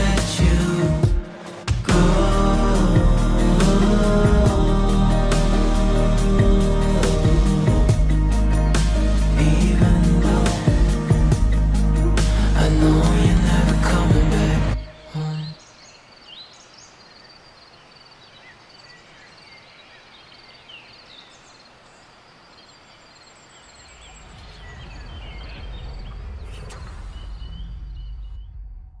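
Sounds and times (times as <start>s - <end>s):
music track: 0.0s - 15.4s
low rumble: 1.9s - 14.8s, 24.0s - 29.0s
birds chirping and calling: 11.8s - 17.3s, 23.4s - 28.6s.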